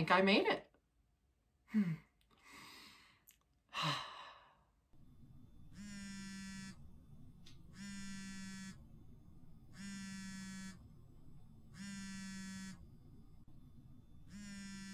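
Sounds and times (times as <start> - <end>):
phone vibrating buzzes: 5.0 - 14.9.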